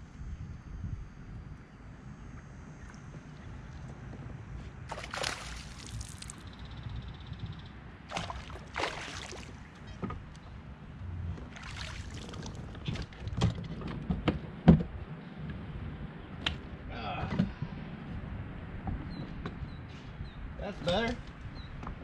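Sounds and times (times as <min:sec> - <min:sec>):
fish splashing in water: 0:04.9 - 0:06.5, 0:08.1 - 0:10.0, 0:11.4 - 0:13.2.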